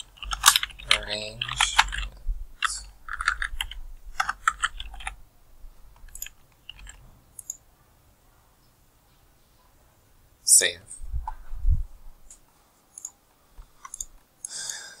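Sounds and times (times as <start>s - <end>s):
typing on computer keyboard: 0.0s - 5.2s, 6.0s - 7.6s.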